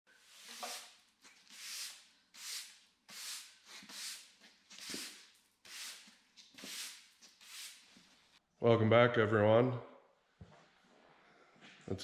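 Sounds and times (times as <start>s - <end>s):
push broom sweeping concrete: 0.1s - 8.2s.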